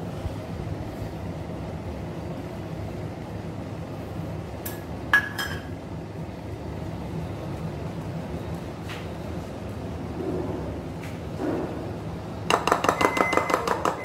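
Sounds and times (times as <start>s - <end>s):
spoon clinking on kitchenware: 5.2s - 5.7s.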